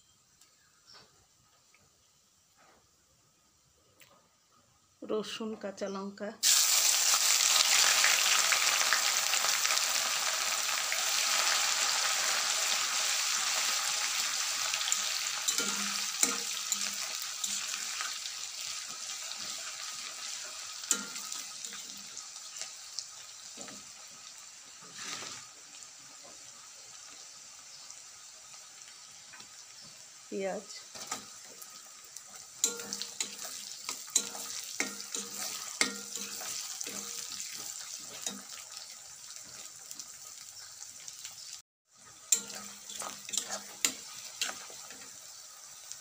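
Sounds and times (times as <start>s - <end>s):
garlic sizzling in hot oil: 6.3s - 46.0s
spatula clinking against pan: 14.9s - 17.7s, 20.8s - 21.3s, 32.6s - 37.2s, 42.3s - 44.6s.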